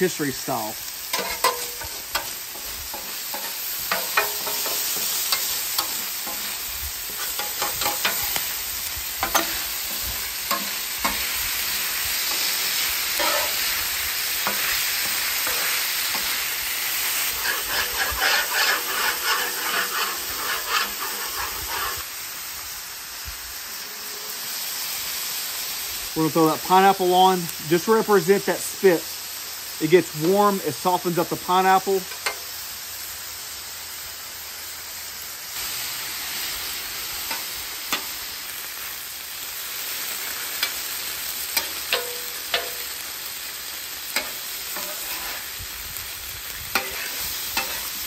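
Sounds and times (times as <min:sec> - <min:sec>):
meat sizzling on a griddle: 0:00.0 - 0:48.0
metal spatula scraping steel: 0:01.1 - 0:08.6, 0:09.2 - 0:22.0, 0:41.6 - 0:43.0, 0:44.1 - 0:45.6, 0:46.7 - 0:48.0.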